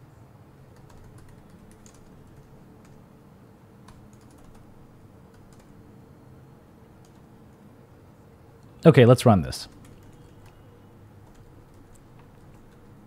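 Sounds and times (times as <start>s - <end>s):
low steady hum: 0.0s - 13.0s
keyboard typing: 0.8s - 3.0s, 3.8s - 5.8s, 7.0s - 7.3s, 9.7s - 13.0s.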